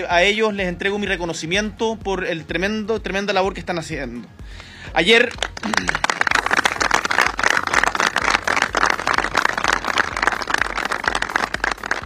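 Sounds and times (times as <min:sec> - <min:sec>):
crowd applauding: 0:05.3 - 0:12.0.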